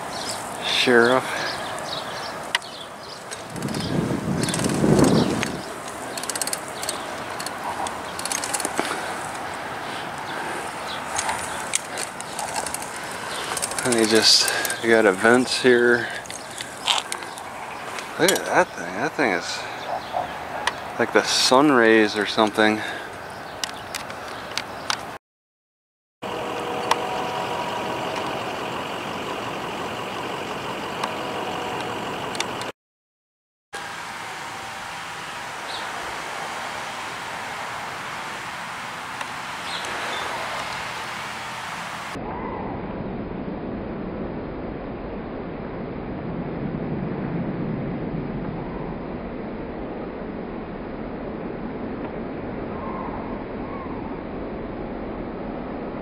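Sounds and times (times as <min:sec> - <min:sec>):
outdoor background noise: 0:00.0 - 0:25.2, 0:26.2 - 0:32.7, 0:33.8 - 0:56.0
rapid fine mechanical clicking: 0:02.5 - 0:09.5, 0:11.2 - 0:15.6, 0:26.5 - 0:32.7
faint clicks: 0:03.3 - 0:09.5.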